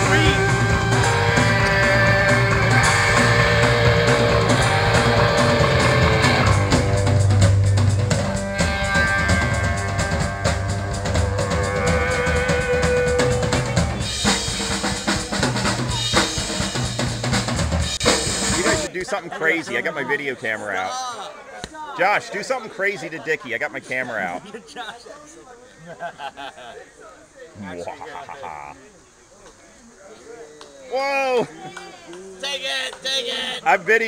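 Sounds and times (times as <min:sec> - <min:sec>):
busy drum kit: 0:00.0 - 0:18.9
punk rock band playing: 0:00.0 - 0:18.9
sustained guitar and bass notes: 0:00.0 - 0:18.9.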